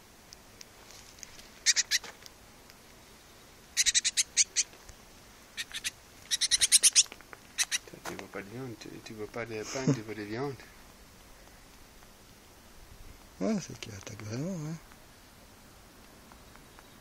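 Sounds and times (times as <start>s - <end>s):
bird harsh high chattering: 1.6s - 2.1s, 3.7s - 4.7s, 5.6s - 7.9s.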